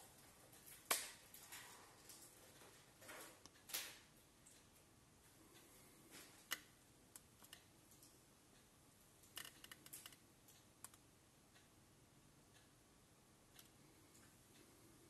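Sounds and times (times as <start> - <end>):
faint clicks and taps on tablet: 6.2 - 8.2, 9.3 - 11.7, 13.5 - 14.7.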